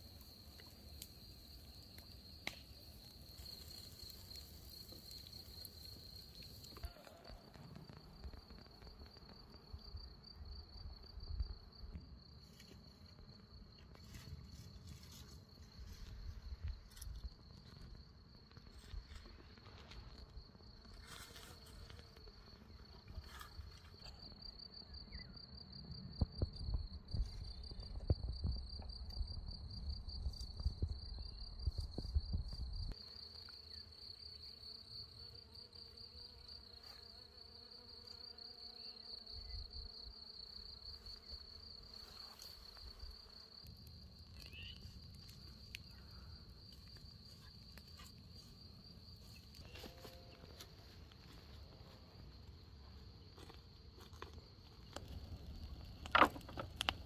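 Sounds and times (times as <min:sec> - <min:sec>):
high-pitched insect trill: 0:26.6 - 0:50.6.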